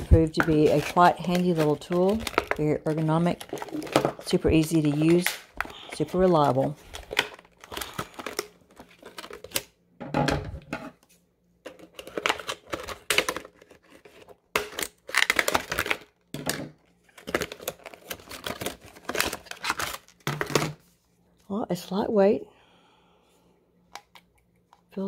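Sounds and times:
plastic crackling and crinkling: 0.0s - 9.7s, 11.6s - 20.8s.

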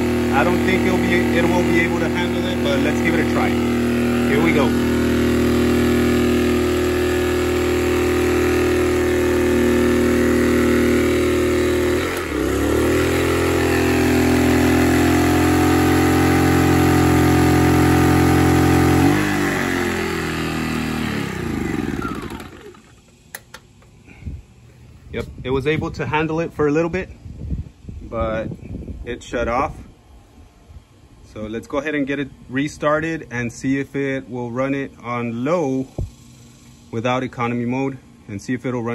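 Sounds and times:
generator engine running: 0.0s - 25.3s.

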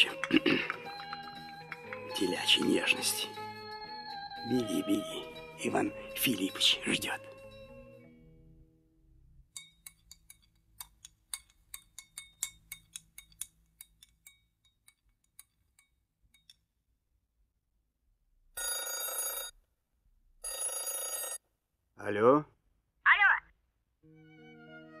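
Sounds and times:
spoon clinking in glass jar: 9.5s - 16.6s
telephone bell ringing: 18.6s - 19.6s, 20.4s - 21.4s.

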